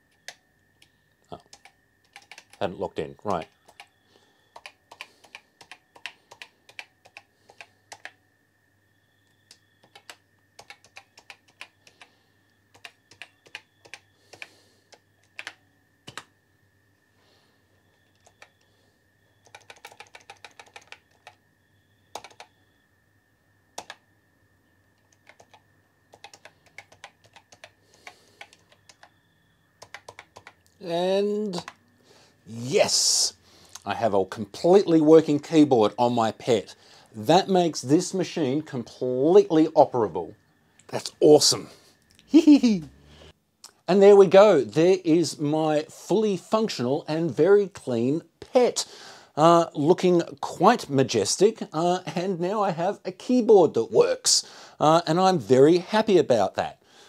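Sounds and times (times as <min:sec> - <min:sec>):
keyboard key clicks: 0:29.8 - 0:30.6.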